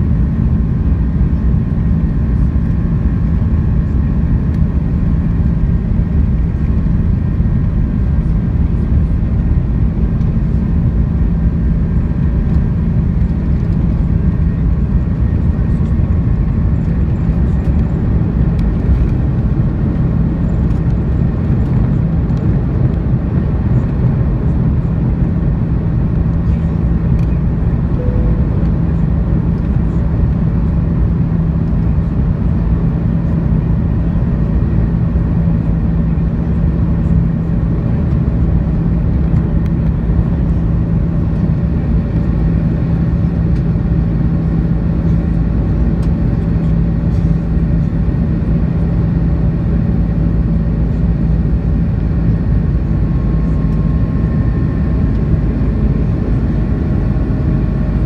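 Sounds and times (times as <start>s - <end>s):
jet engines droning: 0.0s - 58.0s
strong low hum: 0.0s - 58.0s
higher tone: 27.8s - 29.6s.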